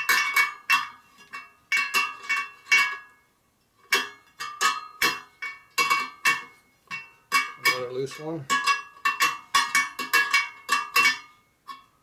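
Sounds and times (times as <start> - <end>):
metal tool pinging wheel spokes: 3.9 - 11.9.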